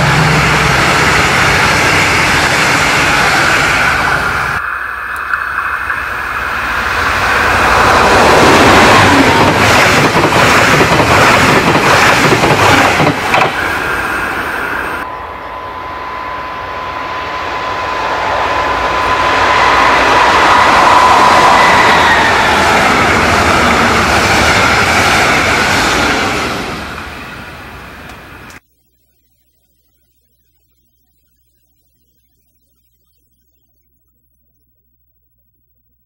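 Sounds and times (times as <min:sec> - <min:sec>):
diesel locomotive engine whine: 0:00.0 - 0:28.6
train wheels clattering: 0:08.0 - 0:13.6.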